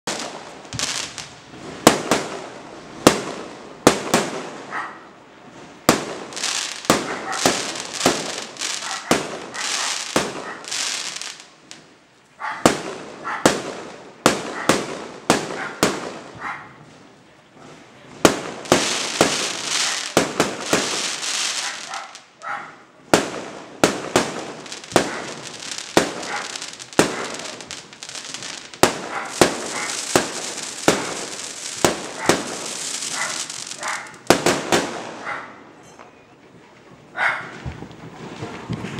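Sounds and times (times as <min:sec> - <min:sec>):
fireworks crackling: 0:00.0 - 0:04.8, 0:05.4 - 0:17.2, 0:17.9 - 0:22.4, 0:23.0 - 0:35.6, 0:36.6 - 0:38.9
firework shells bursting: 0:23.2 - 0:35.0.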